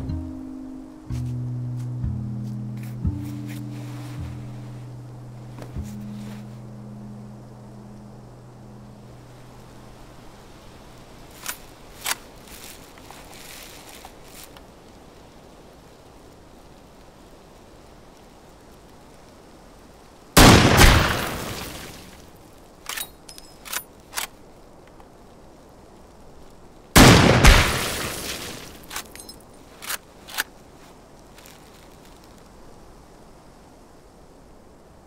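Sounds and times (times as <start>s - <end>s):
rifle shots echoing: 20.4s - 22.1s, 27.0s - 28.9s.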